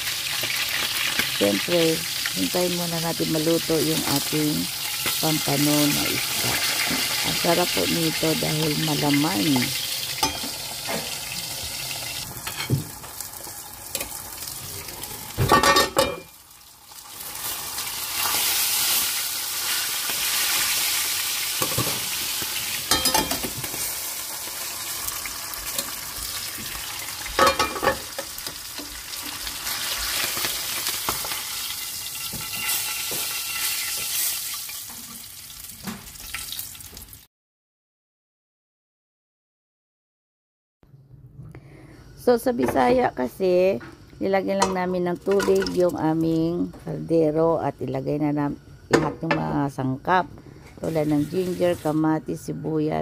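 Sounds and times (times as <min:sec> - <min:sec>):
fish sizzling in hot oil: 0:00.0 - 0:15.5, 0:16.2 - 0:37.2, 0:50.8 - 0:52.0.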